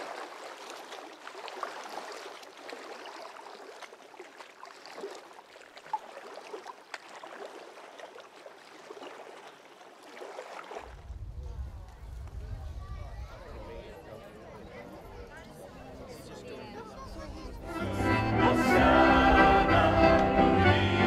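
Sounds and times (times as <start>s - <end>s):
water drips and plops: 0.0s - 11.0s
water splashing and gurgling: 0.0s - 11.3s.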